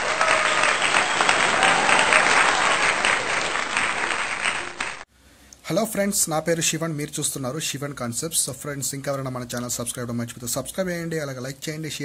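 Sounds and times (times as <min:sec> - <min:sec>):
audience applause: 0:00.0 - 0:05.1.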